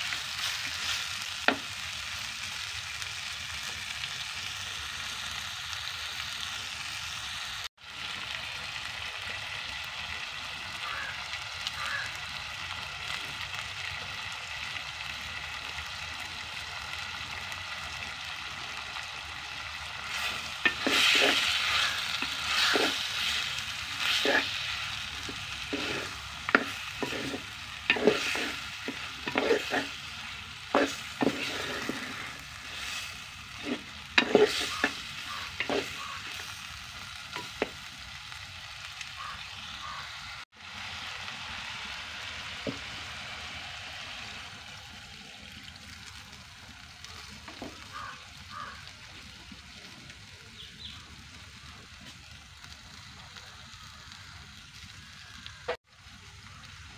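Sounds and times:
frying sizzle: 0.0 - 56.9
wooden spoon scraping clay pot: 20.2 - 24.7, 25.3 - 30.0, 30.7 - 36.4.

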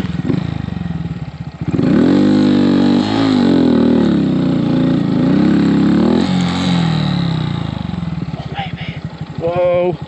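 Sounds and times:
motorcycle engine revving high: 0.0 - 10.0.

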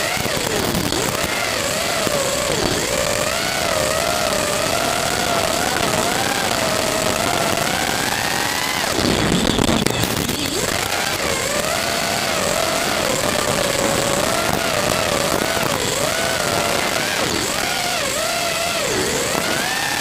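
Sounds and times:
quadcopter motors whining: 0.0 - 20.0.

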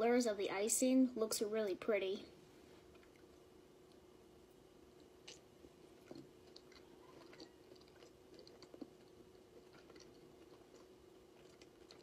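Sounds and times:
faint steady hum: 0.0 - 12.0
chewing and mouth clicks: 2.9 - 4.1, 4.9 - 12.0.

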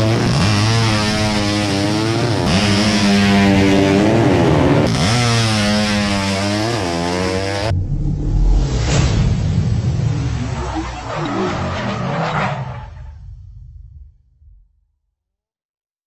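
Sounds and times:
racing motorcycles at full throttle: 0.0 - 8.7.

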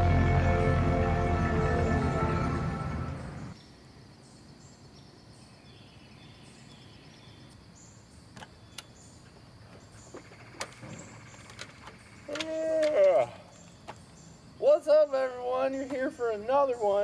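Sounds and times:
music: 0.0 - 3.6.

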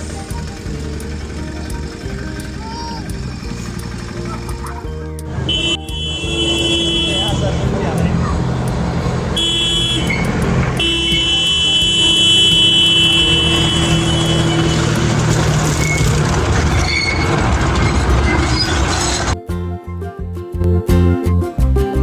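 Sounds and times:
moving train rumble: 0.0 - 19.4
train horn blasts: 5.5 - 7.4, 9.4 - 15.2.

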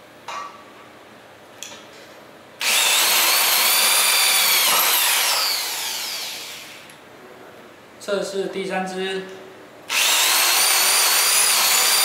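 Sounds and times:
electric drill whining: 2.6 - 7.0, 9.9 - 12.0.

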